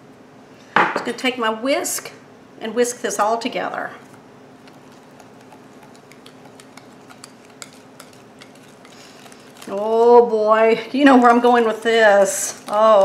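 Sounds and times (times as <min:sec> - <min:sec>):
whisk stirring in ceramic bowl: 0:04.0 - 0:10.0, 0:11.0 - 0:13.0.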